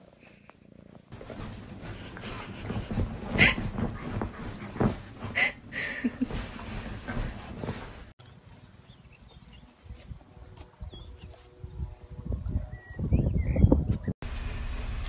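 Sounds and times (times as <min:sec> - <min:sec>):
bedding rustling: 0:00.7 - 0:11.6.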